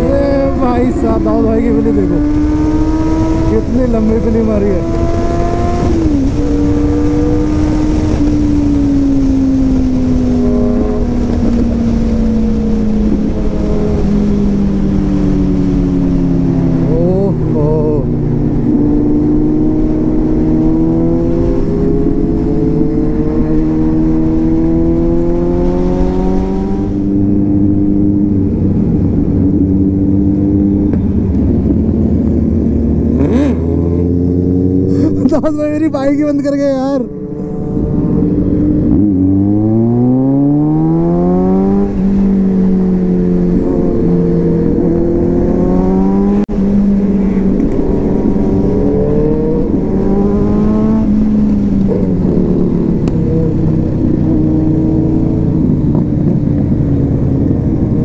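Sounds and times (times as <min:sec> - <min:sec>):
motorcycle engine: 0:00.0 - 0:58.0
wind rush: 0:00.0 - 0:58.0.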